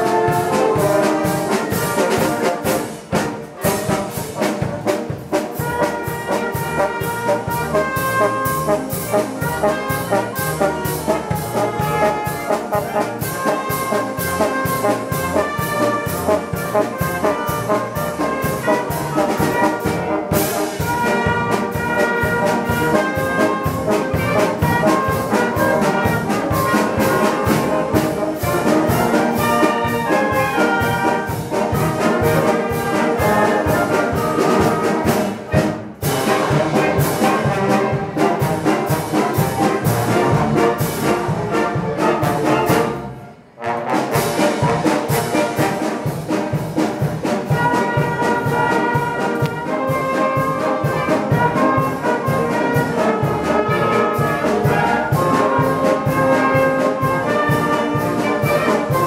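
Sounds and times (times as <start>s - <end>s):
drum kit steady beat: 0.0s - 42.9s
brass and woodwinds playing: 0.0s - 59.0s
timpani: 0.0s - 59.0s.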